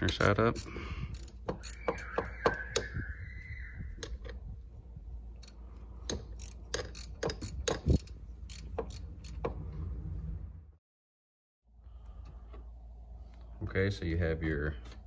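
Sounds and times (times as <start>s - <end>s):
hand ratchet clicking: 0.0s - 2.9s, 5.3s - 9.6s.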